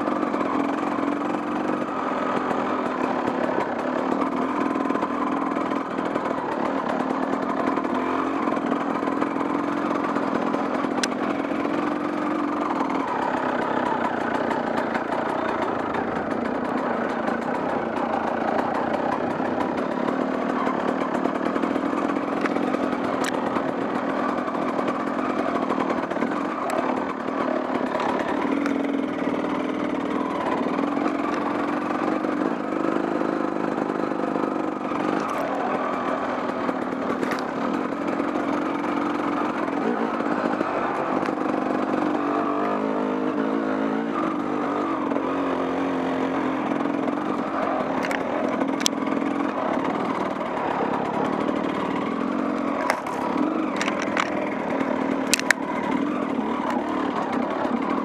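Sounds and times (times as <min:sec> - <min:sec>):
off-road vehicle engine running: 0:00.0 - 0:58.0
sharp clicks: 0:55.2 - 0:56.1.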